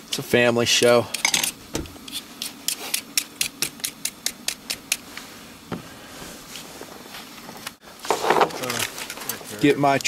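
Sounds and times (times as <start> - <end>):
peeler scraping potato skin: 2.0 - 5.0.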